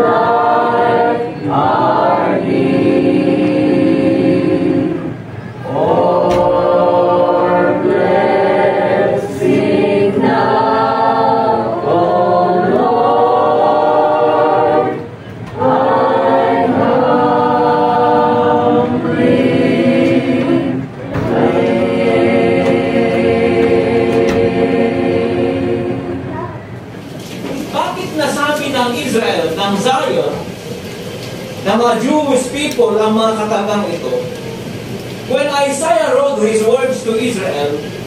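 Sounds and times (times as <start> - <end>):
mixed choir singing: 0.0 - 27.0.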